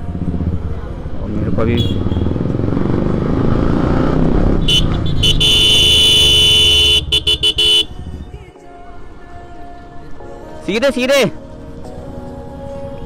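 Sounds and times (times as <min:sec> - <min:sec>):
motorcycle engine: 0:00.0 - 0:08.2
vehicle horn: 0:01.6 - 0:02.4, 0:04.6 - 0:08.2.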